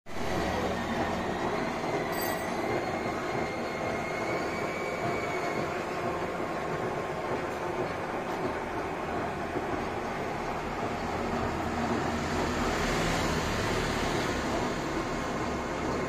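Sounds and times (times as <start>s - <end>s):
metal lathe running: 0.2s - 4.7s.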